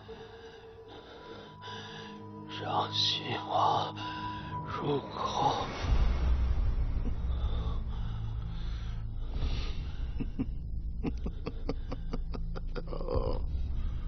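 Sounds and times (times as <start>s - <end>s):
person breathing: 0.0s - 2.5s, 3.8s - 4.7s, 7.0s - 12.5s, 13.4s - 14.0s
low hum: 3.9s - 14.0s.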